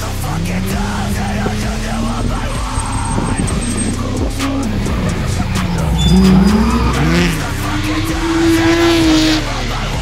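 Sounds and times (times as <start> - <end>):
tyres squealing: 0.0 - 9.7
car engine revving: 0.0 - 10.0.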